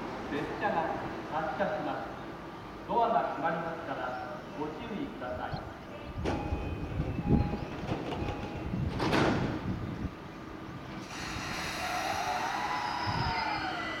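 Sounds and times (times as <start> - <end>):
train doors closing: 6.0 - 10.0, 10.8 - 14.0
train motor whine rising: 11.0 - 14.0.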